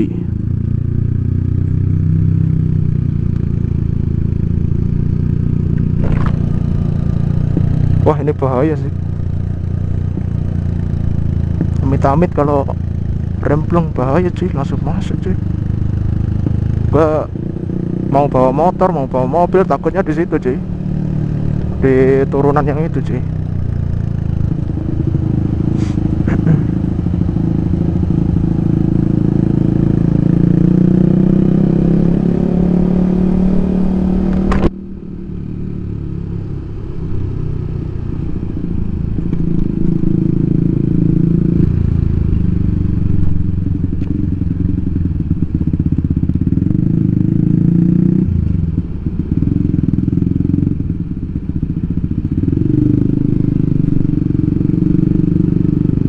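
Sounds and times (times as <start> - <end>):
scooter engine running: 0.2 - 18.8, 38.5 - 56.0.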